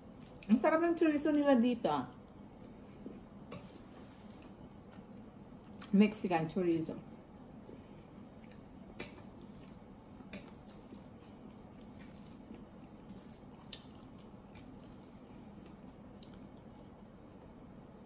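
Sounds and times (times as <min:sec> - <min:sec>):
soft chewing: 0:02.1 - 0:05.9, 0:07.6 - 0:17.6.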